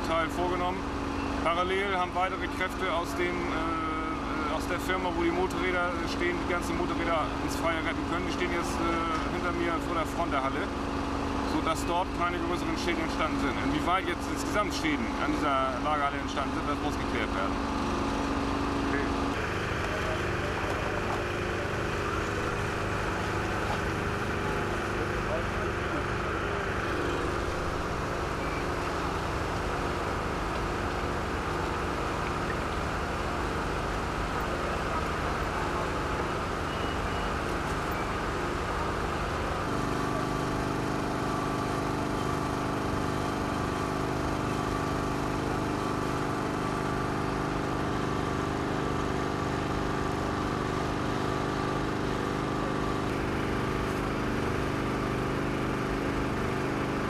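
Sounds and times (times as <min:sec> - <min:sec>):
engines droning: 0:00.0 - 0:43.1.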